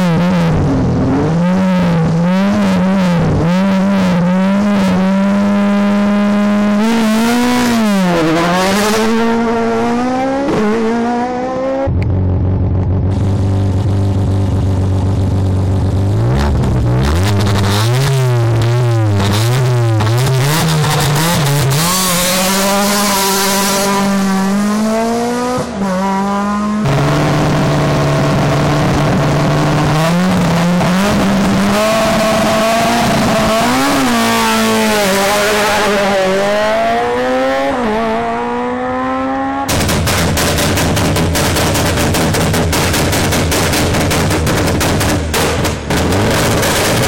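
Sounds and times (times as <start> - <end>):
rally car engines revving: 0.0 - 47.0
exhaust bangs: 39.5 - 47.0.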